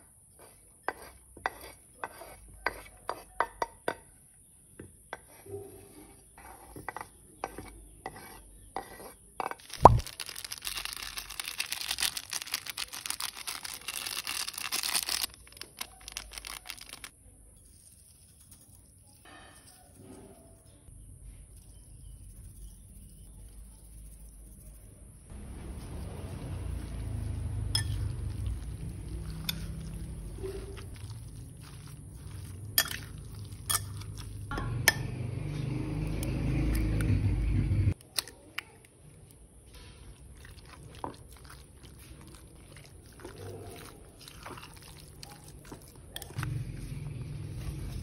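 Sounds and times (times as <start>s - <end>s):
spoon scraping glass bowl: 0.4s - 3.6s, 27.3s - 35.0s
egg cracking: 9.6s - 17.1s
spoon clinking against glass: 27.8s - 28.4s, 32.4s - 35.1s.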